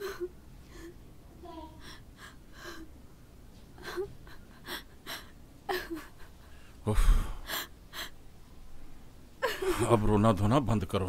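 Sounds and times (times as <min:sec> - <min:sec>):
woman sobbing: 0:00.0 - 0:01.0, 0:03.8 - 0:06.6, 0:09.4 - 0:10.1.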